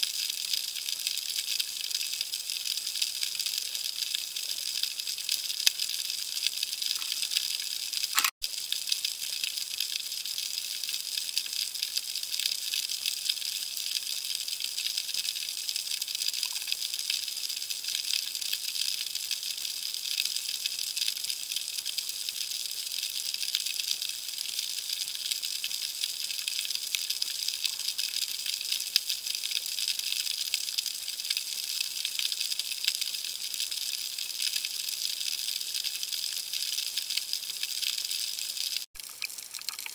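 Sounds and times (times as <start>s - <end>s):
snapping shrimp crackle underwater: 1.6s - 10.0s, 16.2s - 17.0s, 36.6s - 39.9s.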